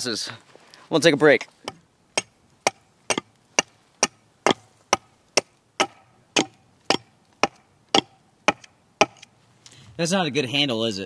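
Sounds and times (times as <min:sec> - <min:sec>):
hatchet chopping wood: 0:01.6 - 0:09.3.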